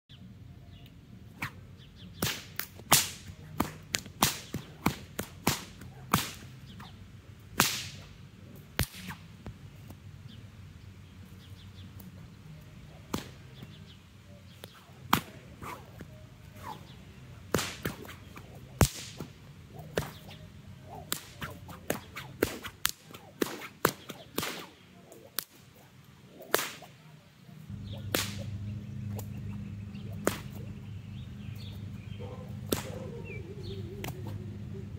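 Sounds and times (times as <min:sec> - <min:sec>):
whip cracking: 0:01.3 - 0:01.6, 0:02.2 - 0:09.3, 0:12.9 - 0:13.9, 0:14.5 - 0:27.0, 0:27.7 - 0:30.8, 0:32.6 - 0:33.2, 0:34.0 - 0:34.4.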